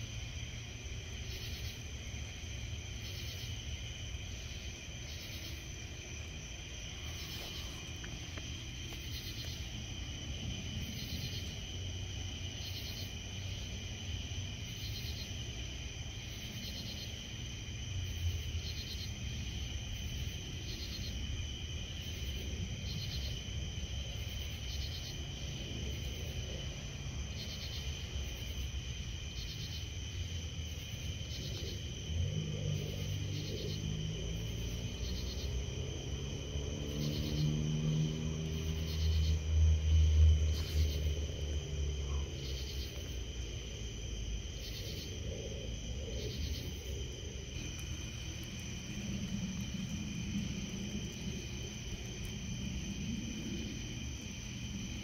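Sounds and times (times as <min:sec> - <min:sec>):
crickets and katydids chirping: 0:00.0 - 0:55.0
low rumble: 0:43.8 - 0:55.0.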